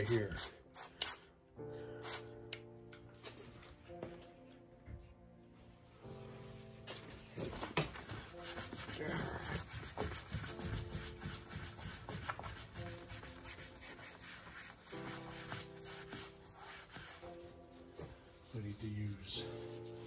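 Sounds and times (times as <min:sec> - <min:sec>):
paper towel rubbing on hull: 0:08.1 - 0:17.4.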